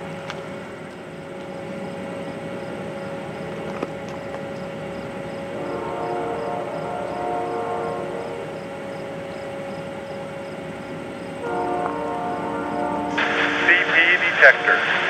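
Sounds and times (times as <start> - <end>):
diesel train rumble: 0.0 - 15.0
train horn chord: 5.4 - 10.4, 11.3 - 15.0.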